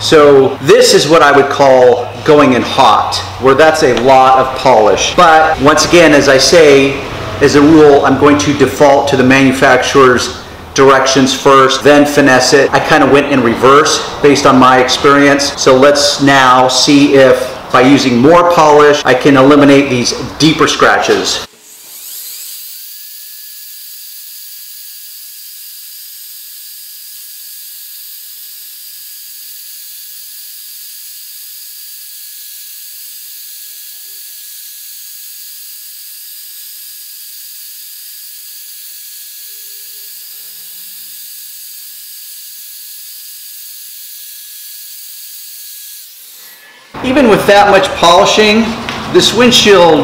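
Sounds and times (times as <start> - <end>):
cordless drill whine: 21.7 - 46.7.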